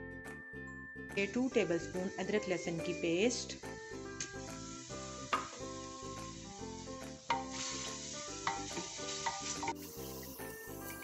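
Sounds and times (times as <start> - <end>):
background music: 0.0 - 11.0
onion sizzling in hot oil: 1.2 - 11.0
wooden spoon stirring: 8.4 - 9.8.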